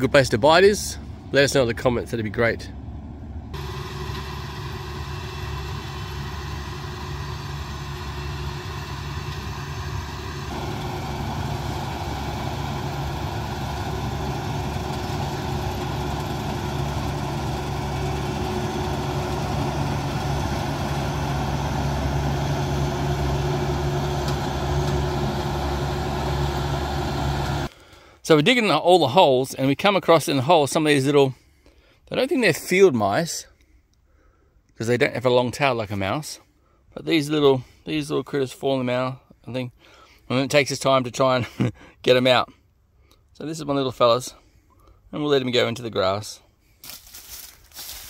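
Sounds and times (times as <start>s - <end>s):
diesel engine running: 0.0s - 27.7s.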